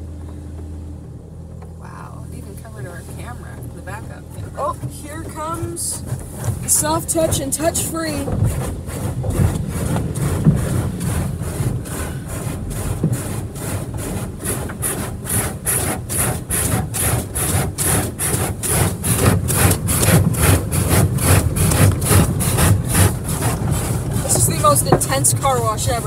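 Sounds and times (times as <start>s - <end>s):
low machinery rumble: 0.0s - 26.0s
car wash brushes slapping: 1.8s - 26.0s.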